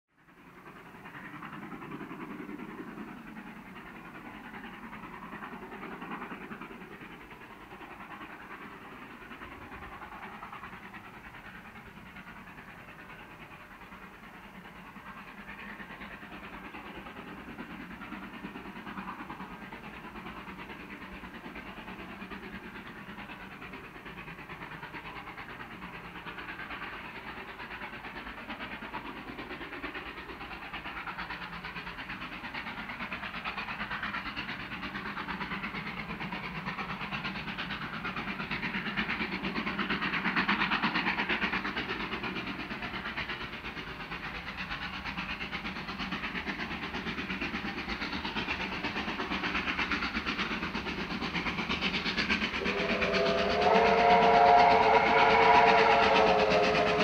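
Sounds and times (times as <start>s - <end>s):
distant steam locomotive exhaust: 0.2s - 57.0s.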